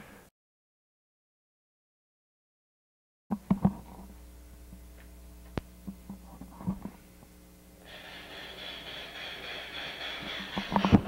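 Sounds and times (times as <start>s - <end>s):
low electrical hum: 3.3s - 11.0s
steady hiss: 7.0s - 10.8s.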